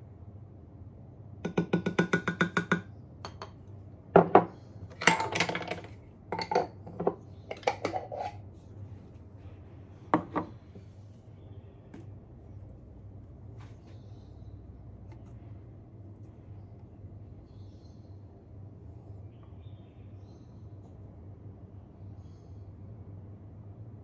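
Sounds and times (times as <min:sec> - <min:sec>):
glass jars clattering on counter: 0:04.2 - 0:08.4, 0:10.2 - 0:10.5.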